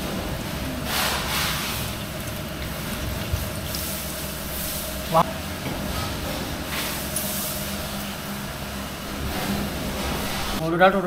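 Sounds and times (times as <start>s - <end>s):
workshop hum with hiss: 0.0s - 11.0s.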